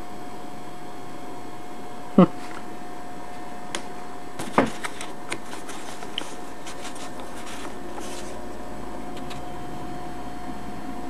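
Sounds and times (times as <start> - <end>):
faint hum tone: 0.0 - 11.0
paper rustling: 4.4 - 9.5.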